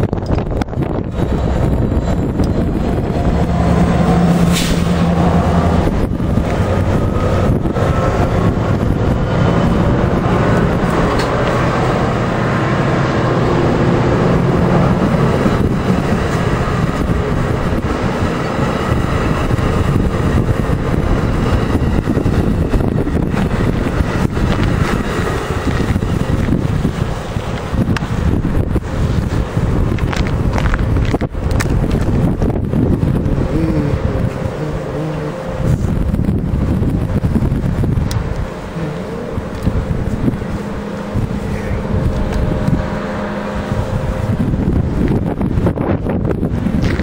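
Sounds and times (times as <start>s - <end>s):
train wheels rumbling on rail: 0.0s - 47.0s
sharp rail clicks: 10.0s - 12.0s, 14.8s - 32.2s.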